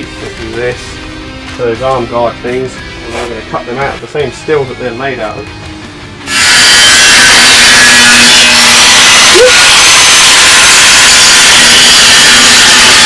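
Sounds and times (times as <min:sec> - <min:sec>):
power tool cutting sheet steel: 0:06.3 - 0:09.5.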